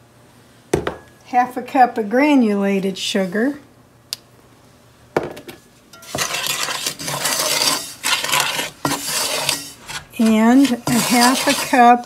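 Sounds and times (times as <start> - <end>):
spoon scraping sugar in pot: 6.0 - 12.0.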